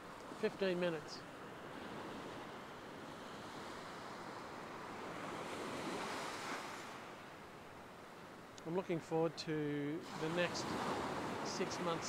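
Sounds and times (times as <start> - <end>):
small waves washing on sand: 0.0 - 7.5, 9.8 - 12.0.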